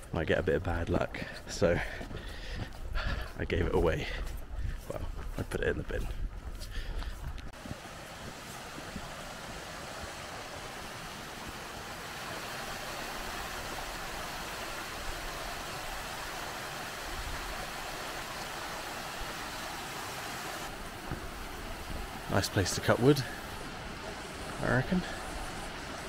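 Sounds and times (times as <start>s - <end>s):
water rushing over rocks: 7.6s - 26.0s.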